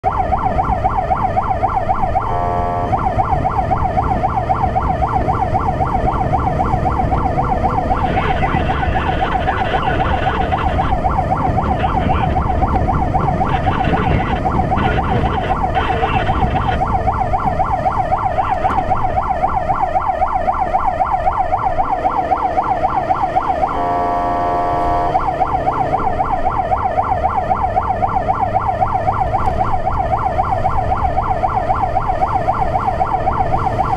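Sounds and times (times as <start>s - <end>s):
fire truck siren warbling: 0.0s - 33.9s
truck engine and road noise: 0.0s - 33.9s
multi-note horn blast: 2.3s - 3.0s, 23.7s - 25.3s.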